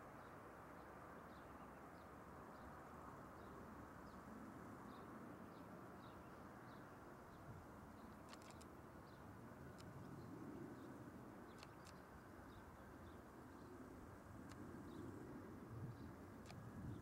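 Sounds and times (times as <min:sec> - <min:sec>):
brief clicks: 0:08.3 - 0:08.7, 0:11.6 - 0:12.0.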